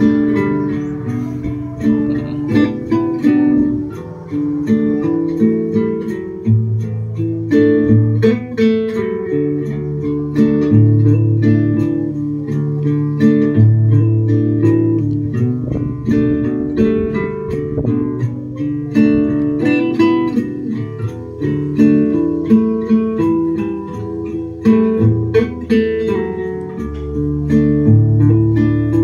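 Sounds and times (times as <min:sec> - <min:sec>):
acoustic guitar plucking: 0:00.0 - 0:29.0.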